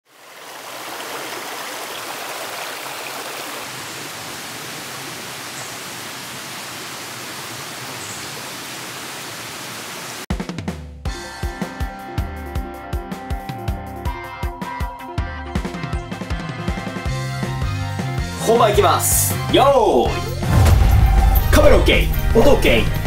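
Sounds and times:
stream pouring over weir: 0:00.0 - 0:10.3
music with drum beat: 0:10.3 - 0:23.0.

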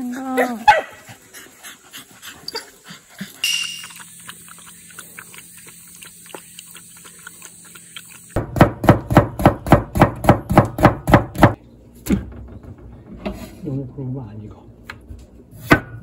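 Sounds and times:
knife chopping on cutting board: 0:08.4 - 0:11.6, 0:15.6 - 0:16.0.

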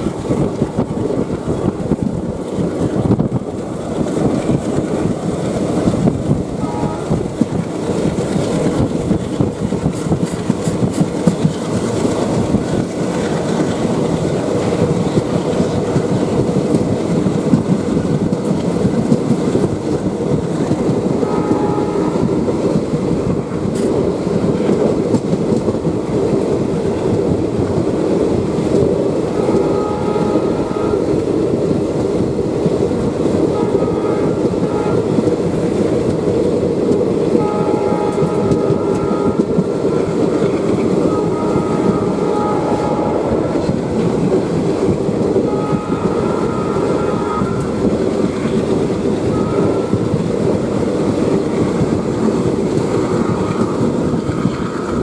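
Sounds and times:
train wheels rumbling on track: 0:00.0 - 0:55.0.

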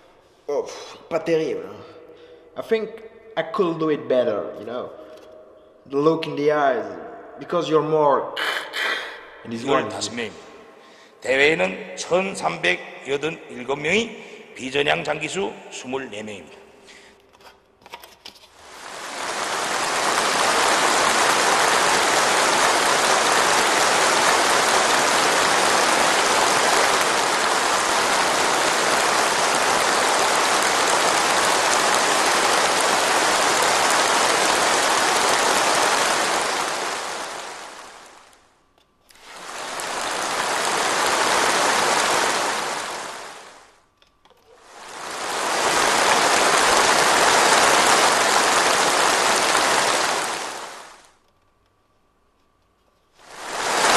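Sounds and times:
crowd applauding: 0:18.7 - 0:38.0, 0:39.3 - 0:43.5, 0:44.7 - 0:50.8.

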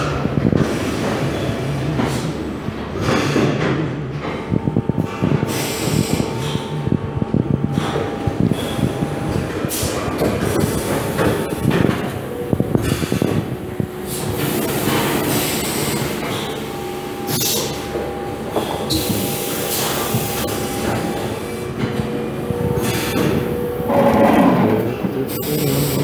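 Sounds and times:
machine humming: 0:22.2 - 0:25.3.

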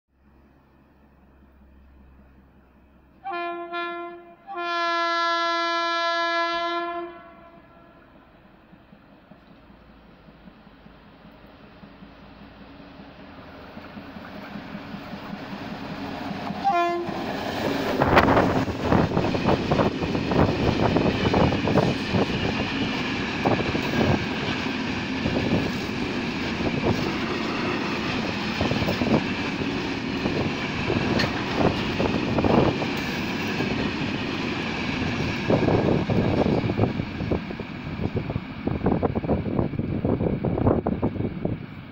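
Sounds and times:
locomotive horn blast: 0:03.2 - 0:08.0, 0:16.6 - 0:17.2
train wheels clattering over rail joints: 0:13.7 - 0:37.1.

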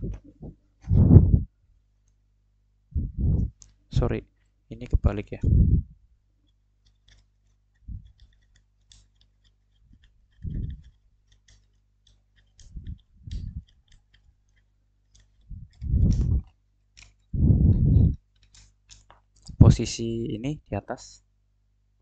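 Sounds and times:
dull low thumps of wooden frame: 0:00.0 - 0:01.5, 0:15.5 - 0:16.4
small clicks of screws and parts: 0:06.4 - 0:17.3, 0:18.2 - 0:19.6.

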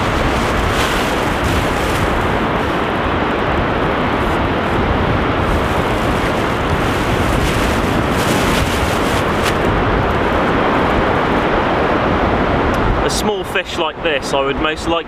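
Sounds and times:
surf breaking: 0:00.0 - 0:11.4
wind buffeting microphone: 0:00.0 - 0:13.1.

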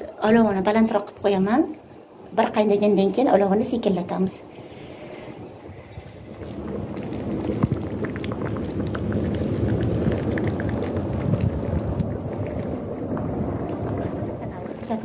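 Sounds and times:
thick mixture bubbling: 0:04.4 - 0:15.0.

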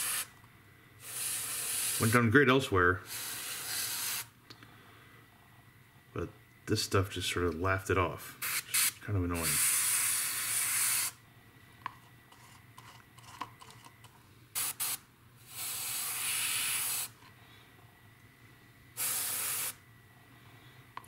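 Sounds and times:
airbrush spraying hiss: 0:00.0 - 0:00.3, 0:01.0 - 0:02.2, 0:03.0 - 0:04.3, 0:08.4 - 0:11.2, 0:14.6 - 0:17.2, 0:19.0 - 0:19.8.

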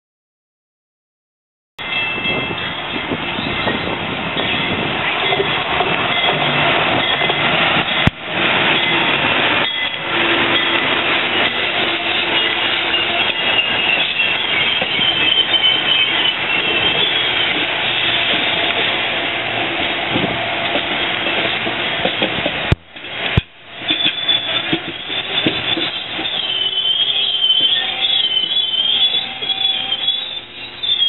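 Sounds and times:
train wheels on rails: 0:01.8 - 0:31.0
high wheel squeal: 0:08.8 - 0:19.0, 0:23.8 - 0:31.0.

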